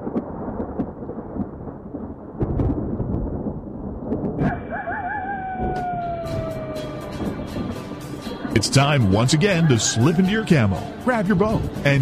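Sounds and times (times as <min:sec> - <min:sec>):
sharp crackles: 0:00.0 - 0:04.5
thunder rumbling: 0:00.0 - 0:09.6.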